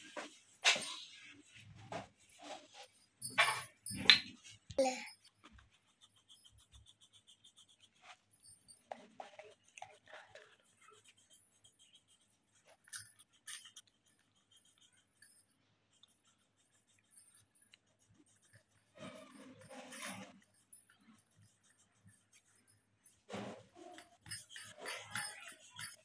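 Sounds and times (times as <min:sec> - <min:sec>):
coloured pencil scratching on paper: 0:00.0 - 0:03.1, 0:05.2 - 0:26.0.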